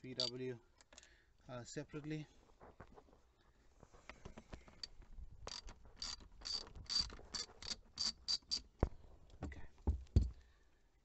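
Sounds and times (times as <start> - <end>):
ratchet driver clicking: 5.5 - 8.6
dull knocks of handling: 8.8 - 10.4.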